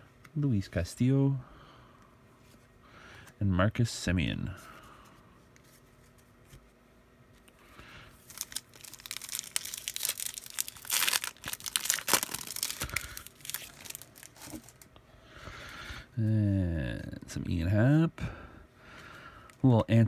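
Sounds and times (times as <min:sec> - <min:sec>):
foil wrapper tearing and crinkling: 0:08.2 - 0:14.9.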